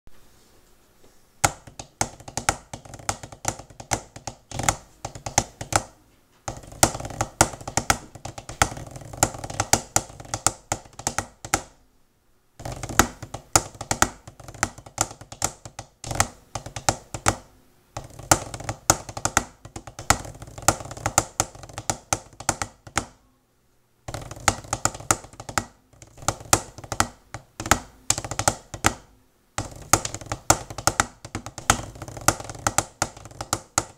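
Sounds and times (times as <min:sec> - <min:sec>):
drumsticks tapping practice pad: 0:01.4 - 0:11.8, 0:12.6 - 0:23.2, 0:24.1 - 0:33.9.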